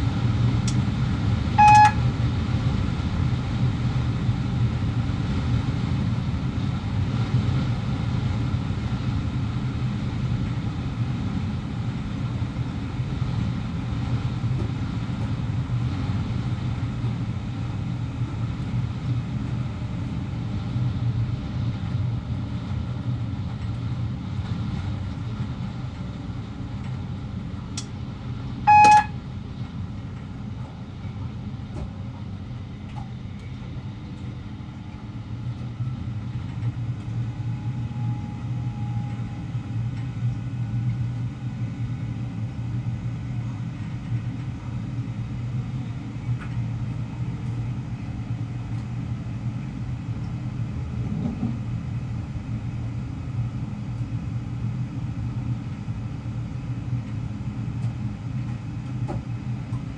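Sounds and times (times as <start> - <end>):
short loud beep: 1.6 - 2.0, 28.7 - 29.2.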